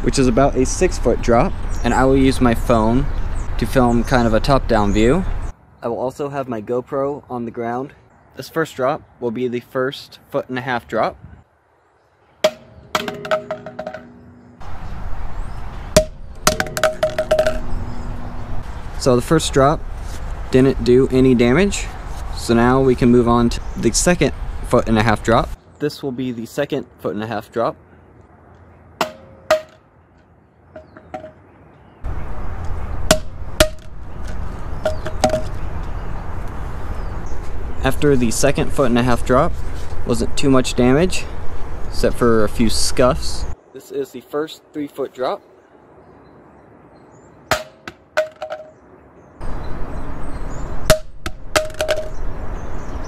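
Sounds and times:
steady outdoor noise: 0:00.0 - 0:53.0
speaker knocking on concrete: 0:12.4 - 0:14.3, 0:16.0 - 0:18.1, 0:33.1 - 0:35.6, 0:50.9 - 0:52.2
steady low rumble: 0:13.2 - 0:25.6.

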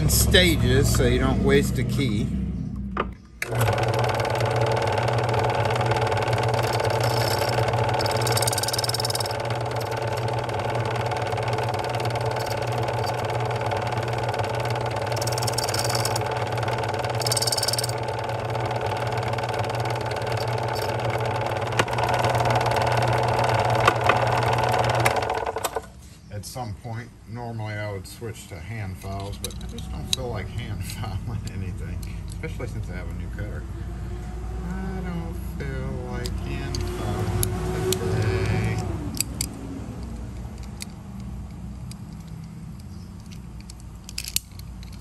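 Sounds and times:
rotary cutter cutting metal: 0:03.4 - 0:25.2
key-cutting machine motor hum: 0:03.4 - 0:25.9, 0:35.8 - 0:40.4.

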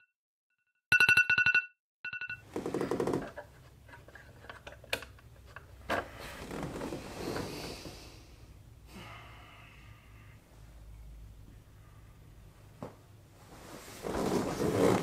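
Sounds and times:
bedding rustling: 0:13.4 - 0:15.0.

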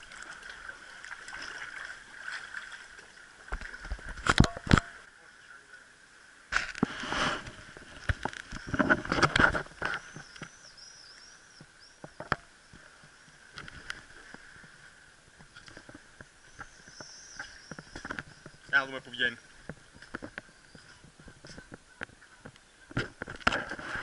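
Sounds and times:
footsteps on loose boulders: 0:06.6 - 0:10.5, 0:19.5 - 0:24.0
stones clattering underfoot: 0:15.4 - 0:18.8, 0:19.6 - 0:23.8.

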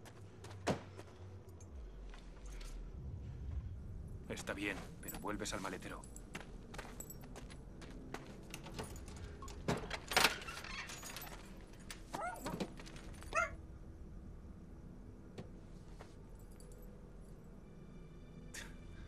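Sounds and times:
keys jangling: 0:08.2 - 0:13.5.

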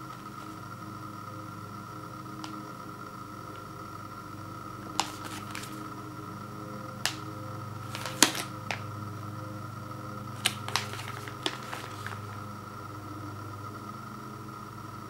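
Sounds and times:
steady low hum: 0:00.0 - 0:15.0
plastic pouch crinkling: 0:05.0 - 0:05.9, 0:07.8 - 0:08.9, 0:10.4 - 0:12.4.

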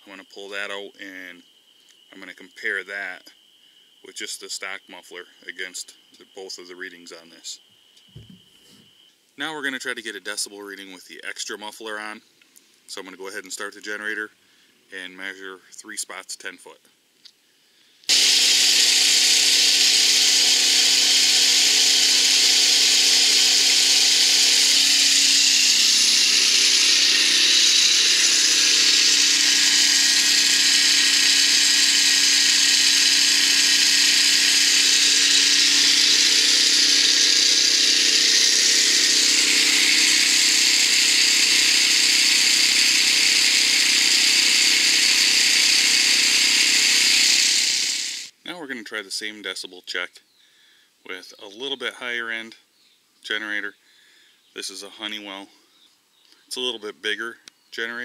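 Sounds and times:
portable generator running: 0:18.1 - 0:48.3.

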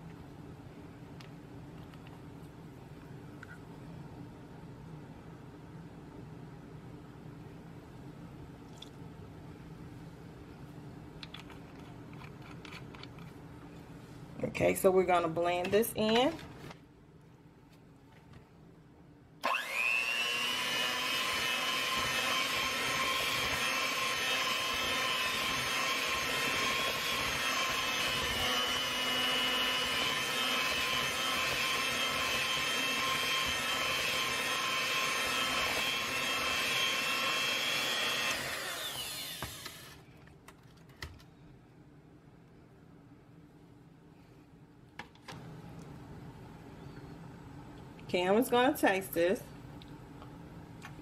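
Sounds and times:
electric hand mixer whining: 0:19.4 - 0:40.0.

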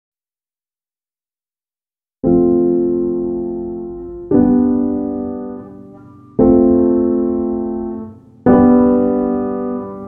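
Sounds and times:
slow piano chords: 0:02.2 - 0:10.0.

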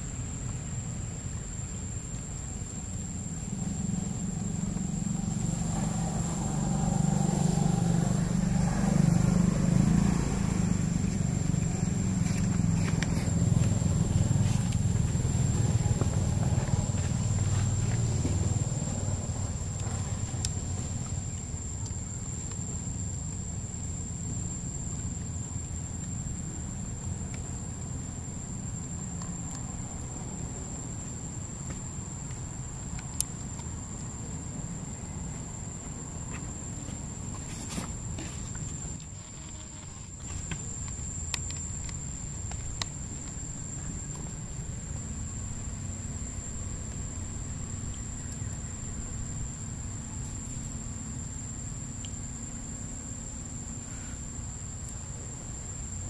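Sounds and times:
high-pitched insect drone: 0:01.6 - 0:33.9.

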